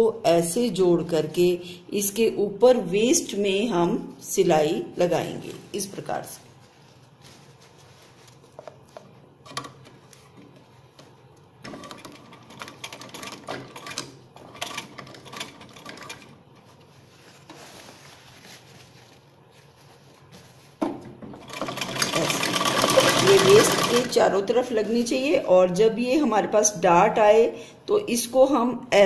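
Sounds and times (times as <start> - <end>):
sewing machine stitching: 21.4 - 24.3.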